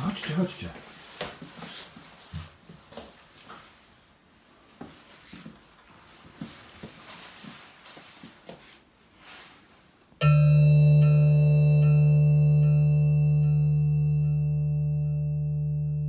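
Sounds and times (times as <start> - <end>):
clothing rustle: 0.1 - 10.2
faint footsteps: 0.2 - 9.9
held low chord with bell-like pings: 10.2 - 16.0.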